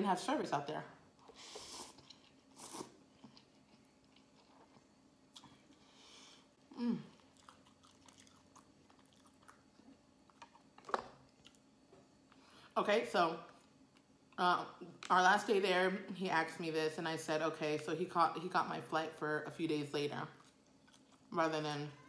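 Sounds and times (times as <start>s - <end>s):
person chewing noodles: 1.2s - 6.0s, 6.8s - 11.6s, 20.4s - 21.3s.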